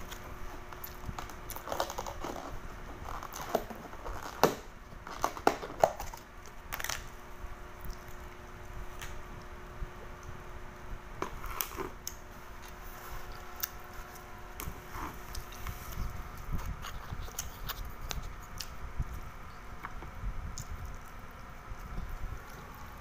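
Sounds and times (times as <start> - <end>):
person chewing food: 7.8 - 8.4, 11.2 - 21.9.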